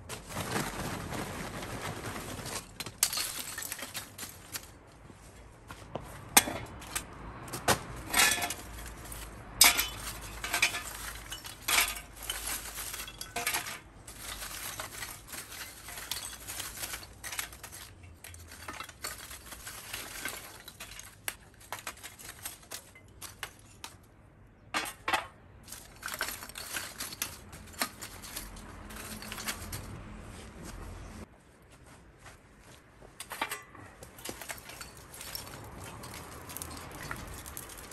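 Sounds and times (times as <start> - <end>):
charcoal clattering into metal: 6.4 - 24.0, 24.7 - 29.9, 33.2 - 37.9.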